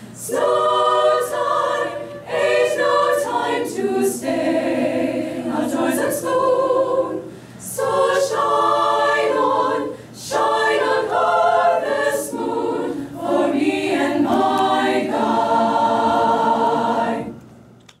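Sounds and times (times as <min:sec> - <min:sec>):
choir singing unaccompanied: 0:00.2 - 0:17.5
singers breathing: 0:07.2 - 0:07.7, 0:09.8 - 0:10.2.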